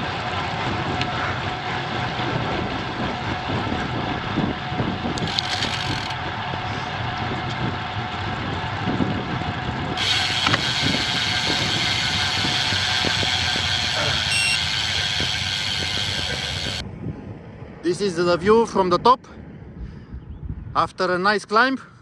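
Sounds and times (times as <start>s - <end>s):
bicycle freehub ticking: 0.0s - 16.8s
bicycle riding noise: 0.0s - 16.8s.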